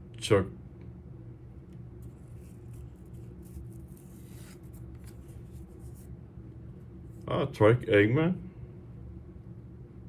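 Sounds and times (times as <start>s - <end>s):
steady low hum: 0.0s - 10.0s
cards flicking and scraping: 1.8s - 6.1s.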